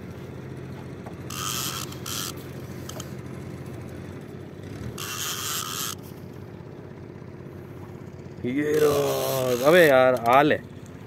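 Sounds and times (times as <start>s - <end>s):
boat engine humming: 0.0s - 11.0s
fishing reel drag buzzing: 1.2s - 3.2s, 4.8s - 6.4s, 8.6s - 10.4s.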